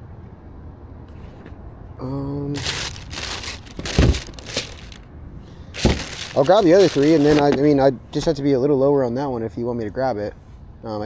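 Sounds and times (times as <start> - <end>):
shoebox rustling: 2.6 - 5.0, 5.8 - 7.7
dull thumps: 2.7 - 5.0, 5.8 - 7.6.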